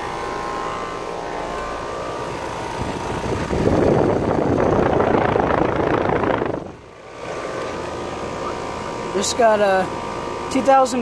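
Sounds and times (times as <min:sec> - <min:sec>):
heat pump humming: 0:00.0 - 0:11.0
loud rush of air: 0:01.7 - 0:09.1.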